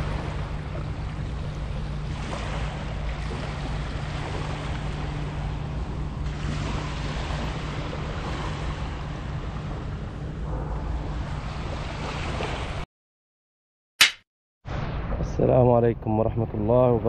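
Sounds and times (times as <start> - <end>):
small waves washing onto shore: 0.0 - 12.8
wind rumble on microphone: 0.0 - 12.8.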